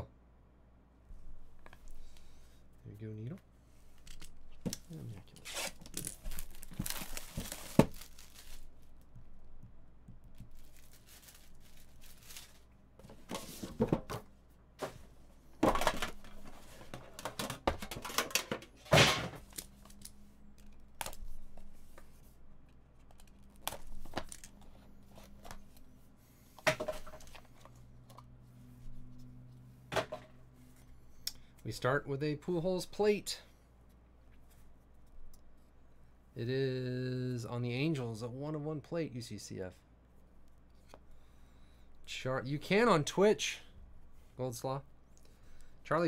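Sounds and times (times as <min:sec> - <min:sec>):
packaging rustling: 0:04.0 - 0:09.1, 0:10.3 - 0:13.8, 0:23.0 - 0:25.7
plastic wrap tearing: 0:05.3 - 0:08.9, 0:10.5 - 0:12.6.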